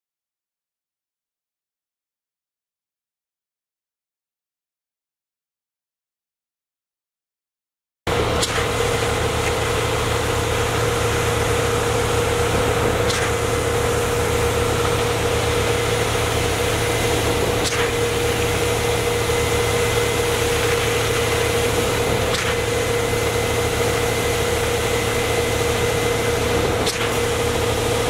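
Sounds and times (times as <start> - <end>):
concrete pump engine drone: 8.1 - 28.0.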